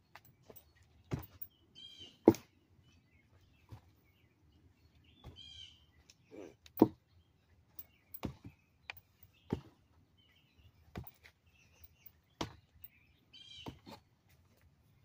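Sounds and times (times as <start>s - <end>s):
arm thudding against tree trunk: 1.1s - 1.5s, 6.8s - 7.0s, 7.8s - 9.7s
bird chirping: 7.1s - 13.8s.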